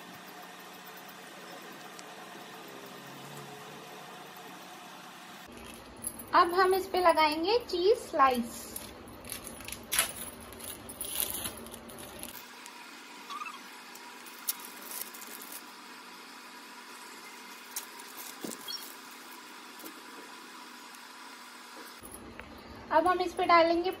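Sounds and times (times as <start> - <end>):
faint steady hum: 0.0 - 24.0
plastic wrappers crinkling: 5.5 - 6.0, 8.6 - 12.7, 14.0 - 15.7, 17.6 - 19.5.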